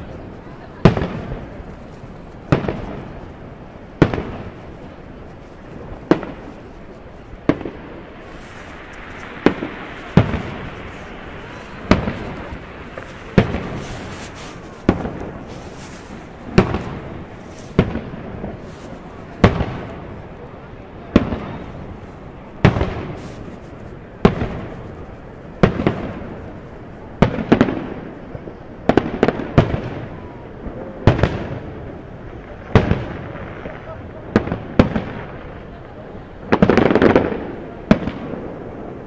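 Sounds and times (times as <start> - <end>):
crackling fireworks fizzing: 0.0 - 39.0
fireworks bursting: 0.0 - 39.0.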